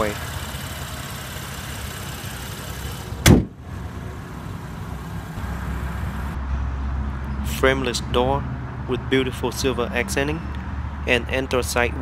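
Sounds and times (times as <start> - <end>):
car engine idling: 0.0 - 6.4
car hood slamming shut: 3.2 - 3.6.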